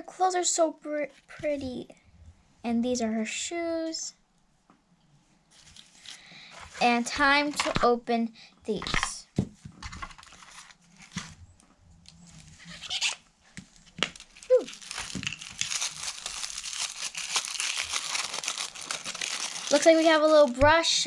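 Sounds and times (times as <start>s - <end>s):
tissue paper crinkling: 10.1s - 11.4s, 12.4s - 20.6s.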